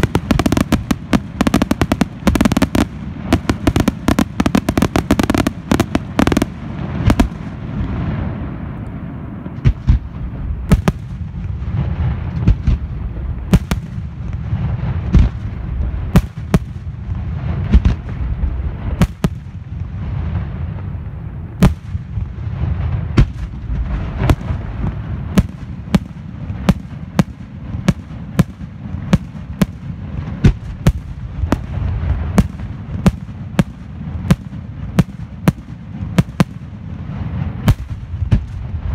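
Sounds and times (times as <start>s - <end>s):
low rumble: 17.0s - 26.6s.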